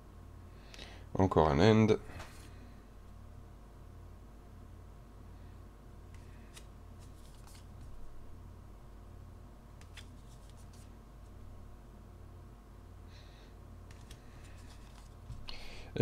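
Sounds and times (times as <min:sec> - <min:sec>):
steady low hum: 0:00.0 - 0:16.0
trading cards flicking and sliding: 0:06.1 - 0:08.1, 0:09.8 - 0:11.0, 0:13.9 - 0:15.6.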